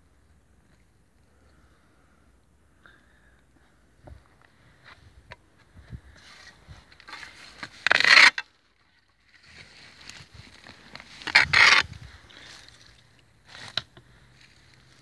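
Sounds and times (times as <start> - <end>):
dry straw rustling and scraping: 6.1 - 15.0.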